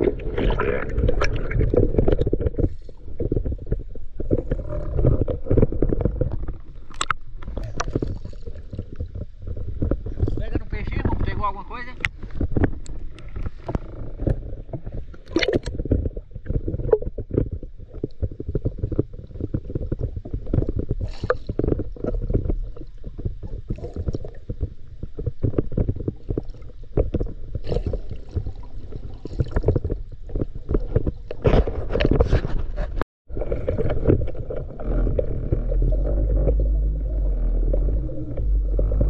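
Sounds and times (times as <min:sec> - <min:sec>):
muffled underwater sloshing: 0:00.0 - 0:39.0
small knocks and swishes: 0:01.0 - 0:39.0.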